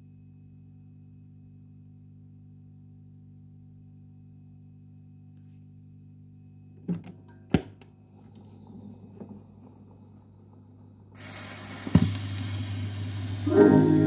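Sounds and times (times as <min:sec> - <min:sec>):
record player humming: 0:06.8 - 0:14.0
faint scraping and rumbling: 0:08.0 - 0:11.4.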